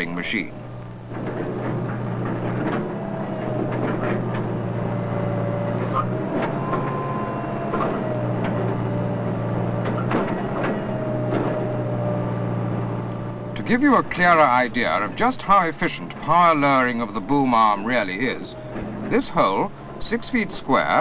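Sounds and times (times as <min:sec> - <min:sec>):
diesel engine running: 0:00.0 - 0:21.0
wavering hydraulic whine: 0:00.0 - 0:21.0.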